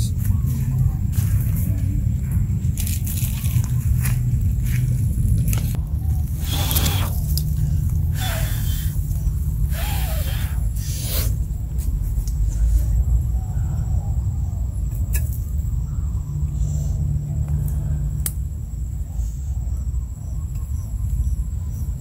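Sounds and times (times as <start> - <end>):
wind rumbling on microphone: 0.0 - 22.0.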